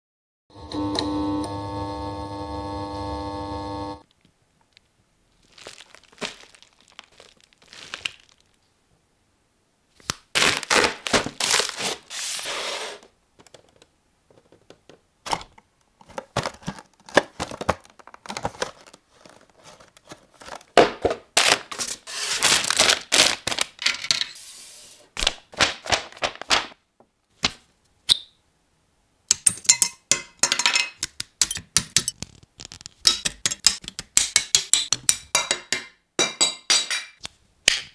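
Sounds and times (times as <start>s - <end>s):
packaging tearing and crinkling: 5.4s - 8.6s, 10.0s - 12.6s, 16.3s - 20.8s, 21.4s - 23.8s, 32.2s - 33.0s
clicks and taps of box and parts: 13.4s - 21.2s, 29.3s - 37.9s.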